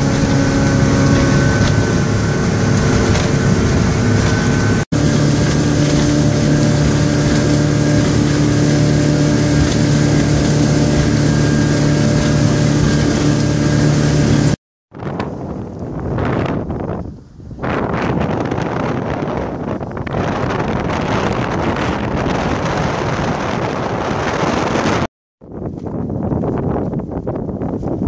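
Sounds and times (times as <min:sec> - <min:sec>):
rushing water: 0:00.0 - 0:22.1
boat engine drone: 0:00.0 - 0:25.6
wind: 0:00.0 - 0:28.0.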